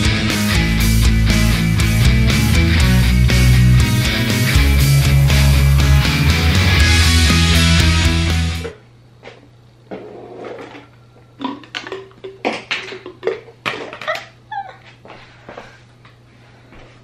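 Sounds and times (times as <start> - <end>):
plastic cups knocking and rustling: 9.3 - 14.4.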